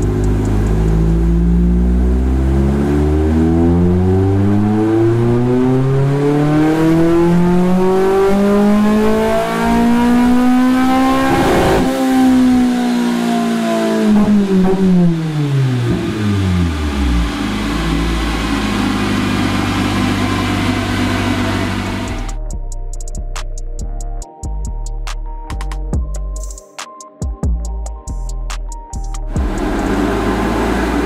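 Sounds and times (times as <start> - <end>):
engine revving at full throttle: 0.0 - 22.4, 29.3 - 31.0
exhaust cracks: 29.2 - 31.0.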